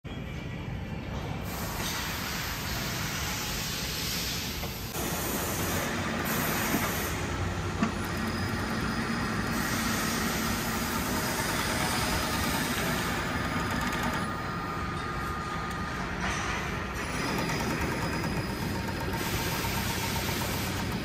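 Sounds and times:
sewing machine whirring: 5.0s - 15.5s, 17.0s - 21.0s.

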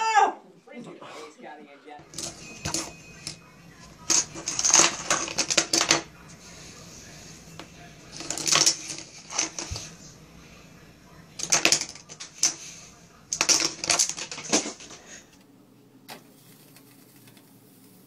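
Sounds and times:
eyeglasses clattering on desk: 2.0s - 6.1s, 7.6s - 9.9s, 11.4s - 12.6s, 13.3s - 15.0s.

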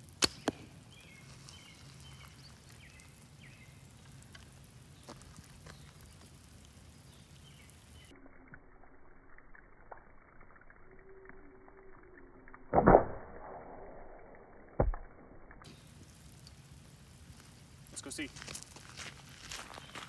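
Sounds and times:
bowstring snapping: 0.2s - 0.7s
arrow striking target: 0.2s - 0.8s, 12.7s - 13.9s.

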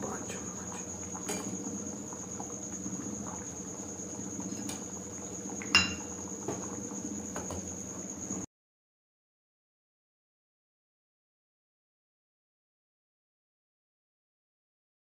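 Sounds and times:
curry simmering and popping: 0.1s - 7.8s.

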